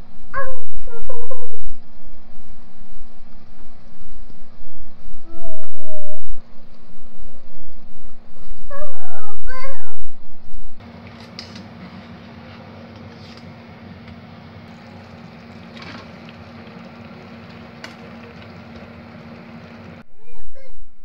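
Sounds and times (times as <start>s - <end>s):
steady low hum: 0.0s - 21.0s
food sizzling and bubbling: 10.8s - 20.0s.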